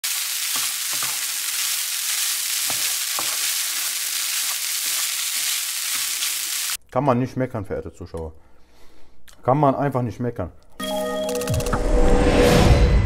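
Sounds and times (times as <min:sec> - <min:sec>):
rice sizzling in a frying pan: 0:00.0 - 0:06.8.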